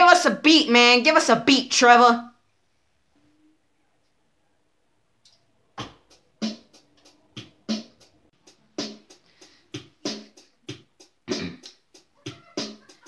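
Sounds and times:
hip-hop beat on electronic keyboard: 5.8s - 13.0s.

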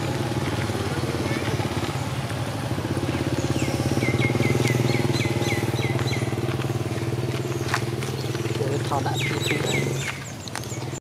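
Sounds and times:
small engine running: 0.0s - 11.0s
bird chirping: 2.8s - 11.0s.

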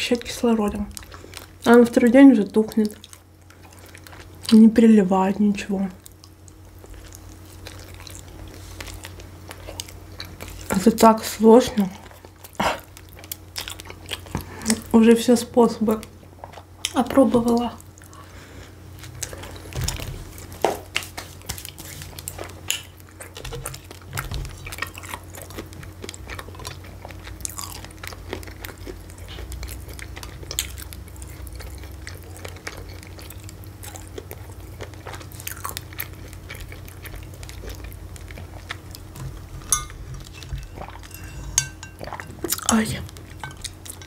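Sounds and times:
person chewing food: 0.8s - 1.7s, 2.7s - 4.6s, 6.0s - 10.8s, 11.8s - 14.9s, 16.0s - 17.0s, 17.8s - 44.0s
faint low hum: 21.4s - 44.0s.

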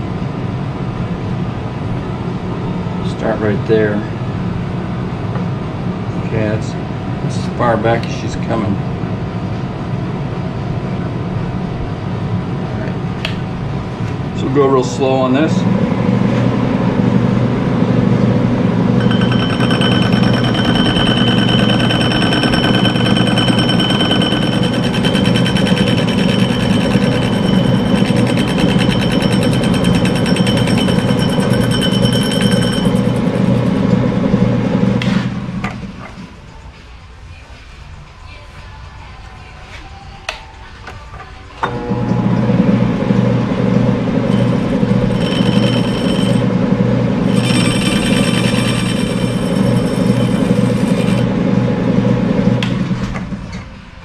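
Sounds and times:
lathe running: 18.3s - 35.5s, 41.6s - 52.7s
high ringing cutting chatter: 19.0s - 33.8s, 44.3s - 46.6s, 47.2s - 51.3s
high tones: 19.0s - 33.8s.

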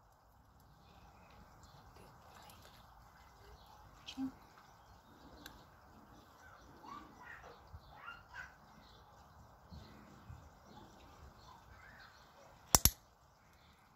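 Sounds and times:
faint bird chirps: 0.7s - 12.6s
dog-training clicker clicking: 12.8s - 13.0s.

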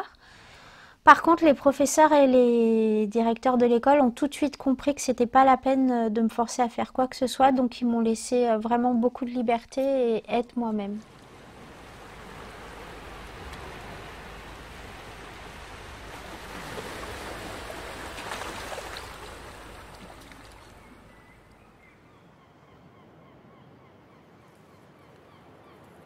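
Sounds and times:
sea waves breaking on shore: 10.8s - 22.1s.

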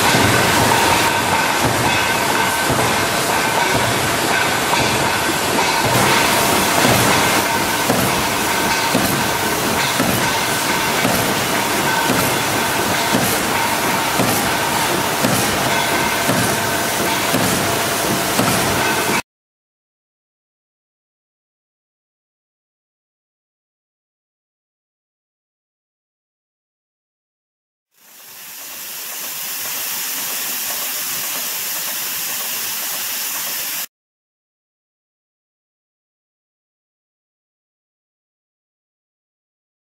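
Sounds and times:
steady rushing hiss: 0.0s - 19.1s, 28.0s - 33.9s
machine clattering: 0.0s - 19.2s
pneumatic cutter knocking: 0.0s - 19.2s.

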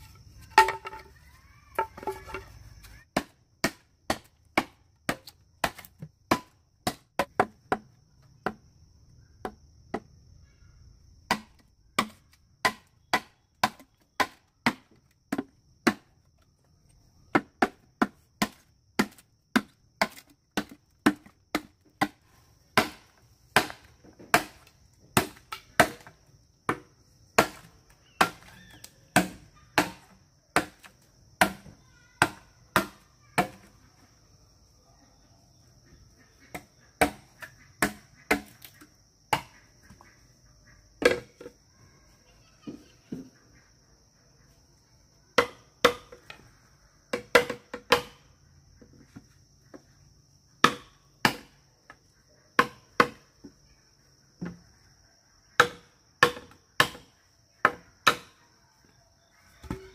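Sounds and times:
blade chopping wood: 3.2s - 8.6s, 11.3s - 16.1s, 22.8s - 26.1s, 50.6s - 51.5s.

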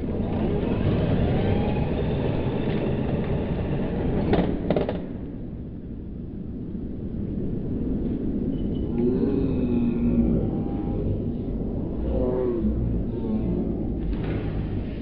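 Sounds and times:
rc buggy motor whining: 0.0s - 4.4s.

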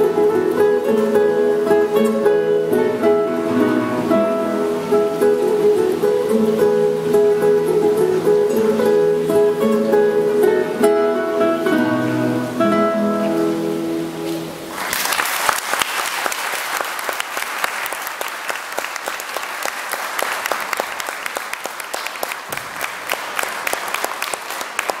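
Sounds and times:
classical guitar chords ringing: 0.0s - 14.7s
audience applause: 14.7s - 25.0s.

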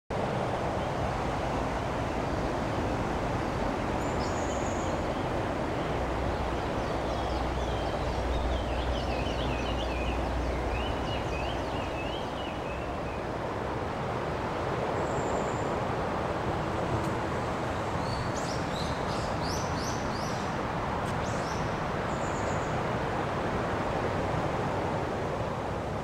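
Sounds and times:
heavy road traffic: 0.1s - 26.0s
bird chirping: 6.6s - 13.2s, 18.0s - 20.5s.

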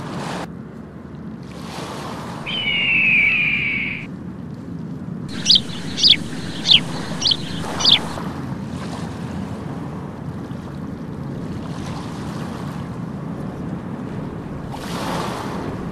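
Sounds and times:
gull calls: 2.5s - 4.1s, 5.3s - 8.2s
wind on microphone: 5.3s - 8.2s.

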